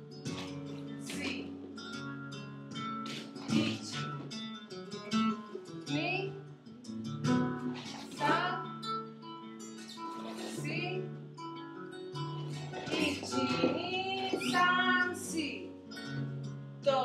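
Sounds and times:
flamenco guitar playing: 0.0 - 17.0
person singing: 3.4 - 4.2, 7.8 - 8.8, 12.4 - 15.7.

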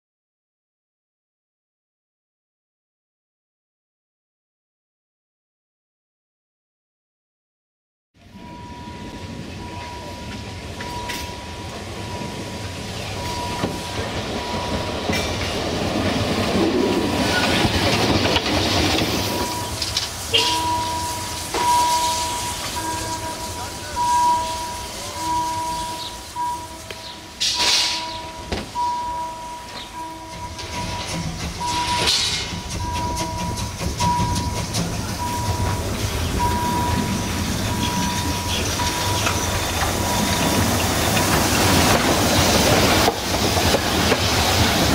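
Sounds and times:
steam locomotive rolling: 8.2 - 44.9
wheels clicking on track: 8.2 - 44.9
electronic warning beep: 8.4 - 15.0, 19.3 - 27.0, 27.6 - 40.8.

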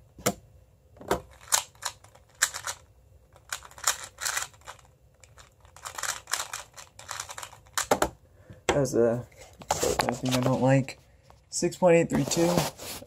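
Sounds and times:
plastic puzzle cube clicking: 1.2 - 2.8, 3.4 - 8.0.

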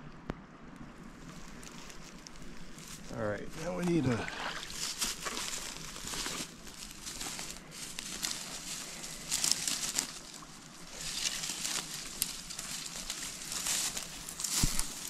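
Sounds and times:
brush and sticks rustling: 0.8 - 15.0
sticks snapping: 11.0 - 15.0.

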